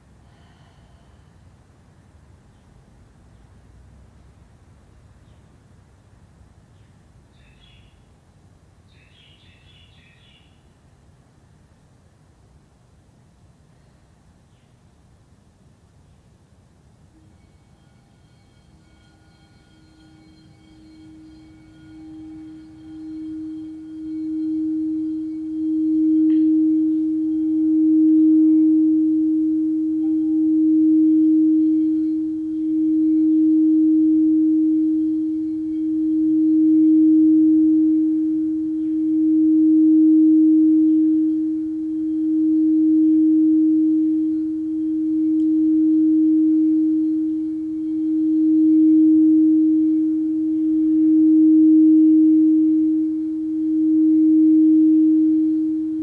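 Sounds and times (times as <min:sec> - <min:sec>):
singing bowl tone: 0:17.0 - 0:56.0.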